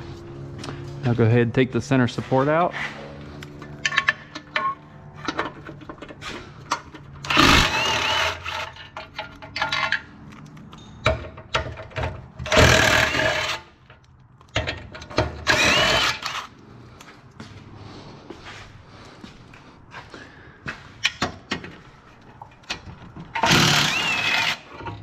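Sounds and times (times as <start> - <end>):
tools clicking and knocking: 3.4 - 16.5, 21.0 - 25.0
power tool whining: 7.2 - 8.9, 12.4 - 13.7, 15.4 - 16.5, 23.3 - 24.8.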